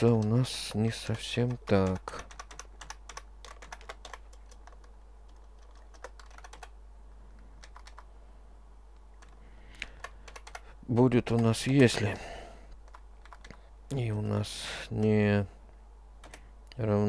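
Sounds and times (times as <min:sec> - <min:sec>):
computer keyboard typing: 0:00.0 - 0:06.8, 0:07.6 - 0:08.1, 0:09.2 - 0:12.0, 0:12.8 - 0:13.6, 0:16.2 - 0:16.4
steady low hum: 0:00.0 - 0:17.0.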